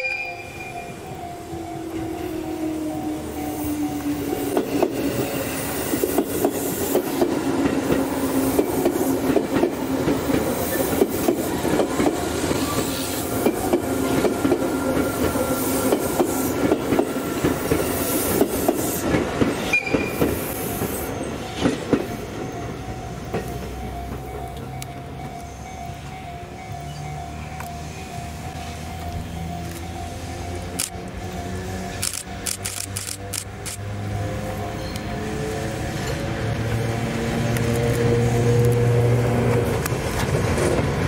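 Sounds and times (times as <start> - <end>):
train wheels clicking over rail joints: 3.6 - 25.5, 26.1 - 33.8.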